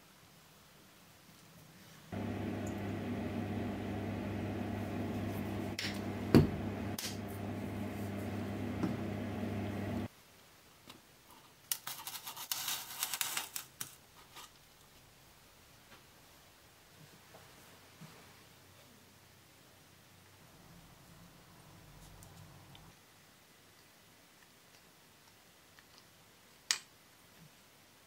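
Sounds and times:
scratchy crackling handling noises: 11.7 - 14.6.

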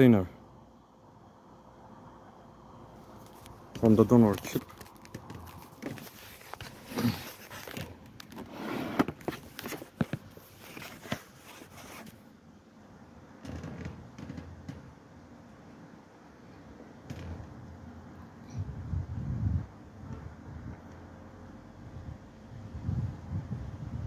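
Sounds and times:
hands handling small parts: 3.1 - 12.2.

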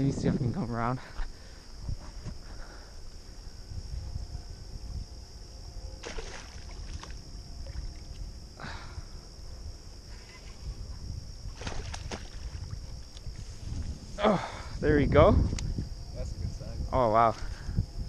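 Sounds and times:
high insect drone: 0.0 - 18.0
wind rumbling on microphone: 0.0 - 18.0
fish splashing and rustling: 6.0 - 8.2, 11.4 - 13.4.

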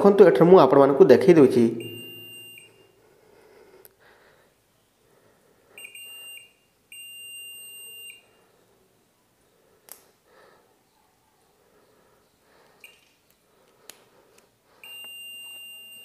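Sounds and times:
multimeter buzzer beeping: 1.8 - 3.0, 5.8 - 8.4, 12.8 - 13.2, 14.8 - 16.0.

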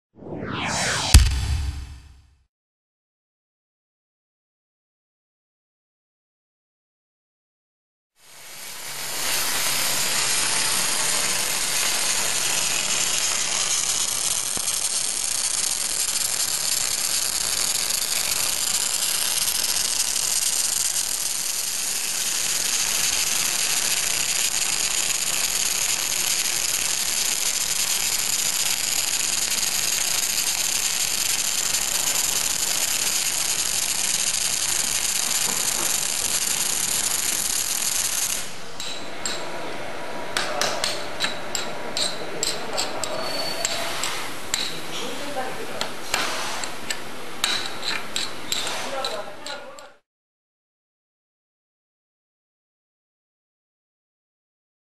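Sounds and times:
welding arc crackling hiss: 8.2 - 38.6.

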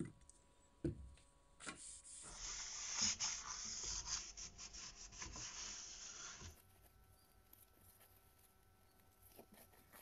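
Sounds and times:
paper towel scrubbing saw blade: 2.0 - 6.6.

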